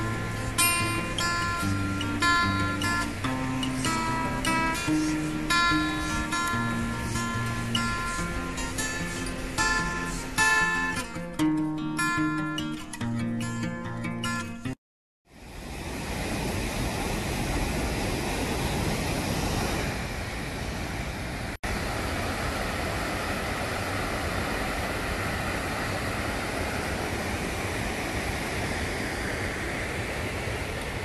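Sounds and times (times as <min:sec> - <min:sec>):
river water rushing: 0:00.0 - 0:12.7, 0:15.4 - 0:31.0.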